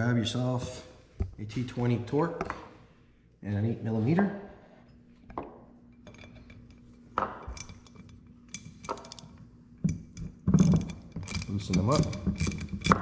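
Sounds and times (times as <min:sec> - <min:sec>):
metal tools clinking on metal: 0:05.9 - 0:13.0.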